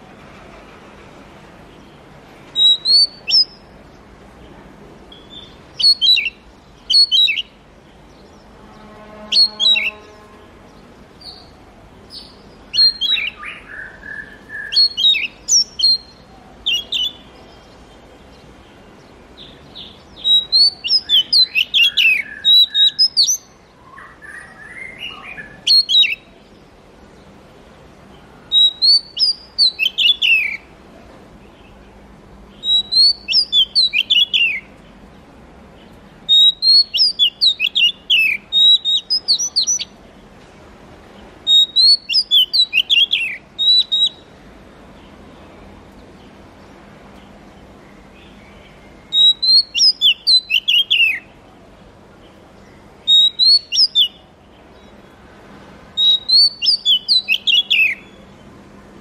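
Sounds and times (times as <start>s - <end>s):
bird singing whistled notes: 2.5s - 3.8s, 5.1s - 10.4s, 11.2s - 18.4s, 19.0s - 26.6s, 28.5s - 30.7s, 32.5s - 34.8s, 36.3s - 40.0s, 41.4s - 44.3s, 48.1s - 51.4s, 52.7s - 55.0s, 56.0s - 58.3s.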